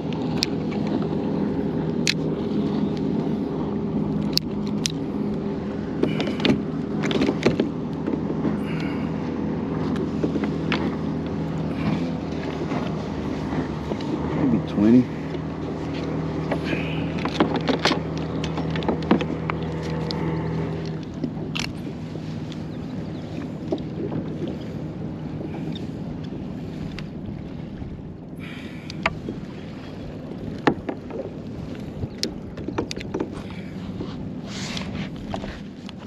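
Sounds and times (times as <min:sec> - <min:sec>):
water rushing: 0:00.0 - 0:36.0
knocks and clicks from hull: 0:06.0 - 0:08.6, 0:09.8 - 0:24.6, 0:30.3 - 0:36.0.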